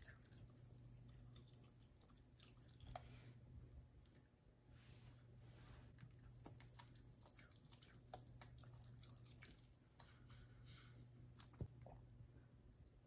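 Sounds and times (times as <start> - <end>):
dog chewing food crunching: 6.0 - 10.5.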